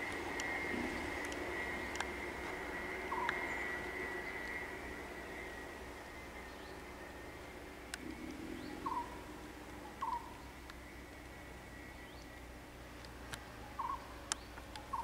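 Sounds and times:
faint clicks: 0.0 - 3.4, 7.9 - 9.0.

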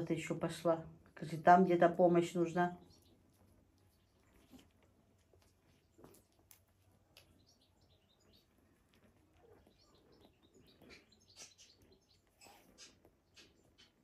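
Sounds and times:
kittens chirping and squeaking: 2.8 - 14.0.

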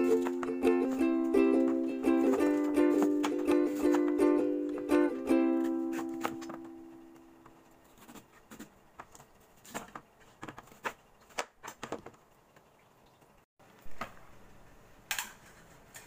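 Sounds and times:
ukulele music: 0.0 - 7.2
knife cutting on plastic board: 7.8 - 12.0.

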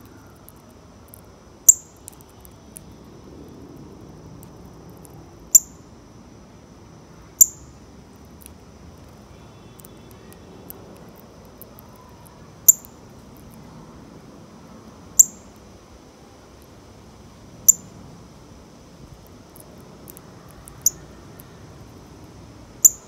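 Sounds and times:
bird chip calls: 20.1 - 21.6.

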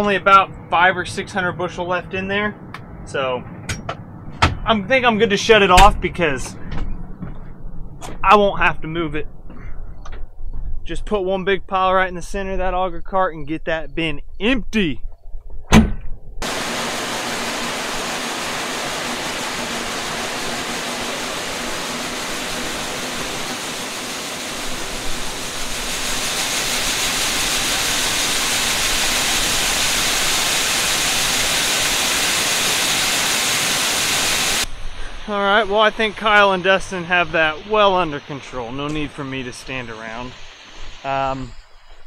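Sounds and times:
soybeans pouring into grain cart: 16.4 - 34.6.

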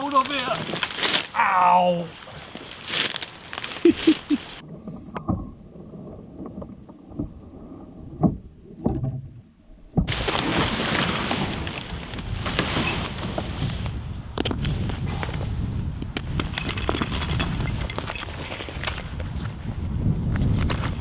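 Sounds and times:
rustling dry reeds: 0.0 - 4.6, 10.1 - 15.9
canoe hull knocks and bumps: 8.1 - 10.5
canoe scraping on grass: 10.1 - 15.8.

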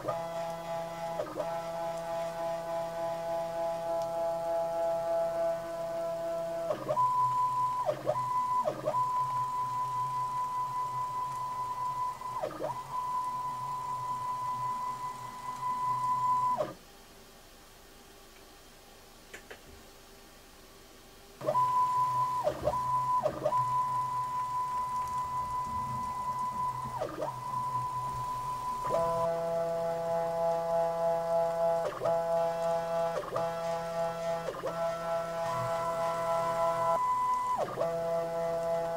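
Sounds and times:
stepper motor whine: 21.5 - 38.9.

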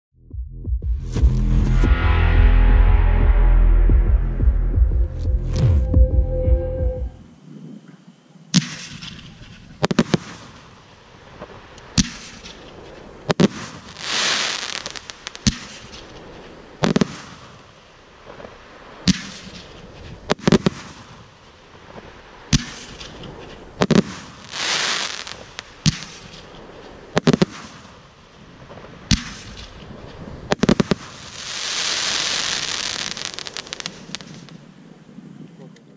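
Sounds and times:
fireworks reports: 6.9 - 35.9
fireworks crackling: 8.5 - 35.9.

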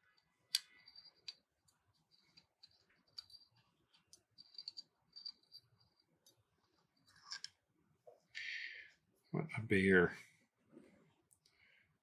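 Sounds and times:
small metal parts clicking: 0.1 - 6.4, 7.0 - 7.6.

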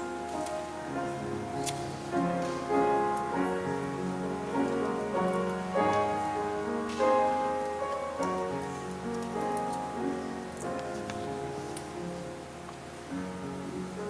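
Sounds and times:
piano chords: 0.0 - 14.0.

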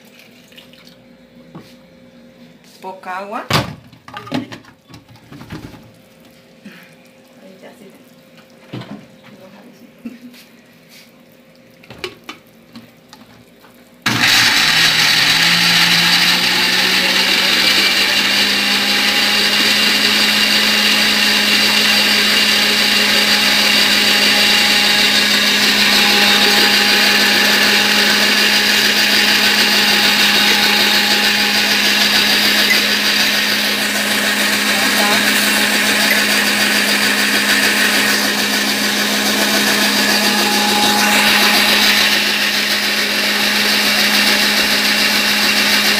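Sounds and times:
blender motor running: 14.0 - 45.9.

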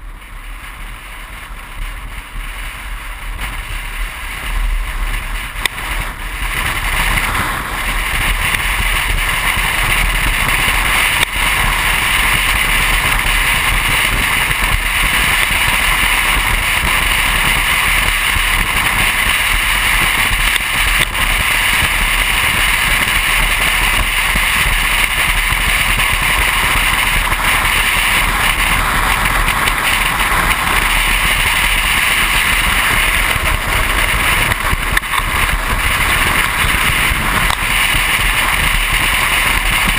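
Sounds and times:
car wind and road noise: 0.0 - 39.9.

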